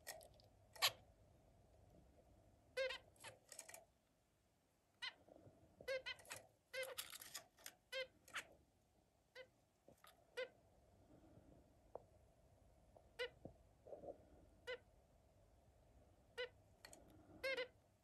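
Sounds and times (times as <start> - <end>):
finches beeping calls: 2.8 - 3.3, 5.9 - 7.1, 17.4 - 17.7.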